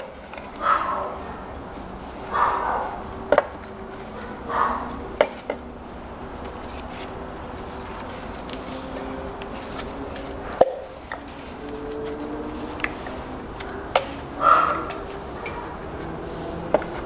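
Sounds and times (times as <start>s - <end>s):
rubbery scrapes: 6.4s - 17.0s.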